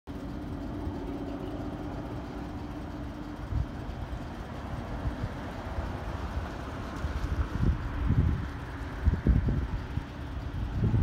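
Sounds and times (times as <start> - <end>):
distant diesel locomotive drone: 0.1 - 11.0
wind buffeting microphone: 4.8 - 11.0.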